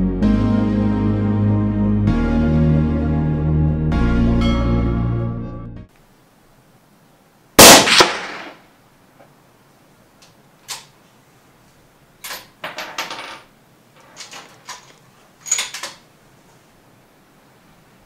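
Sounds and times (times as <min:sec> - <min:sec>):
rifle shot: 0:07.6 - 0:08.7.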